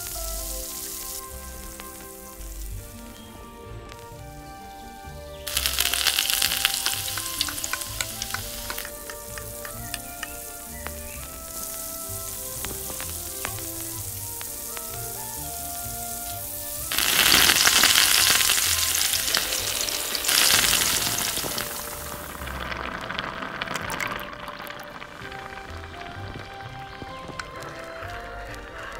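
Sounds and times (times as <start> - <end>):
oil and sauce sizzling: 0.0 - 28.9
wine poured into pot: 5.5 - 9.8, 10.4 - 26.1.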